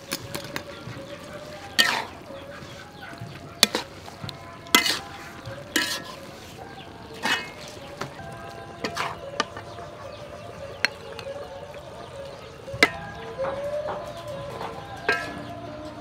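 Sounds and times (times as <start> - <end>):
food sizzling: 0.0 - 15.9
metal ladle clanking on wok: 3.6 - 6.3, 7.1 - 9.7, 14.2 - 15.7.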